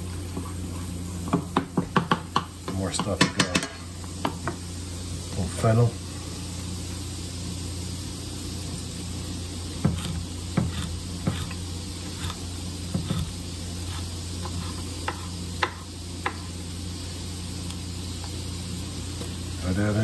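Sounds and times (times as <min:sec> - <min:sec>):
food sizzling in a frying pan: 0:00.0 - 0:20.0
spatula scraping and tapping pan: 0:00.3 - 0:04.6, 0:09.8 - 0:16.5.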